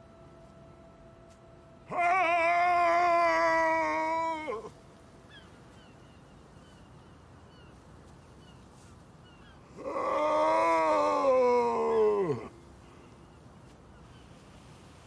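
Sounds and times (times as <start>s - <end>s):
man's anguished howl of grief: 1.9s - 4.7s, 9.8s - 12.6s.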